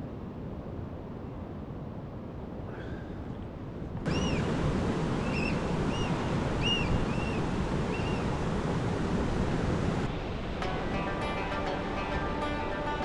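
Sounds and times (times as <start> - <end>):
ocean surf over rocks: 3.9 - 13.0
rising and falling bird calls: 4.1 - 4.6, 5.2 - 8.4.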